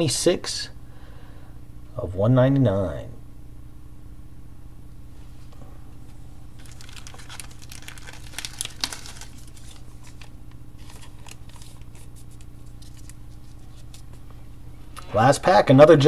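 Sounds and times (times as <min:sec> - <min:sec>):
steady low hum: 0:00.0 - 0:16.0
foil wrapper tearing and crinkling: 0:06.6 - 0:14.2
cards rustling: 0:06.6 - 0:14.5.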